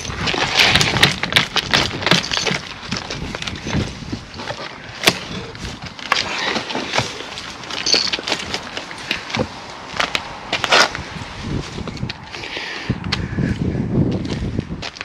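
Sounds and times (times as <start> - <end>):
demolition breaker chiselling brick: 0.0 - 9.5
bricks cracking apart: 0.0 - 10.9.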